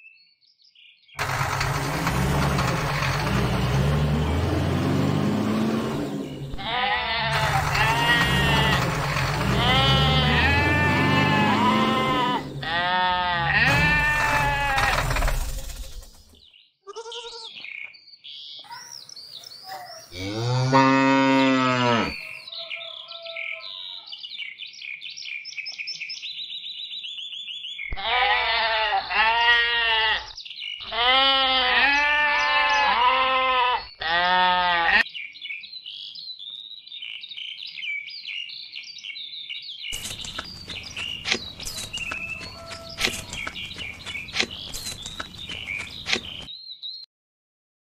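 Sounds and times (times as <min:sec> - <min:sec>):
birds chirping: 0:00.0 - 0:47.1
sheep bleating: 0:06.5 - 0:15.0, 0:16.9 - 0:17.6, 0:20.2 - 0:22.3, 0:27.9 - 0:35.1
cow mooing: 0:06.5 - 0:15.1, 0:20.2 - 0:22.3.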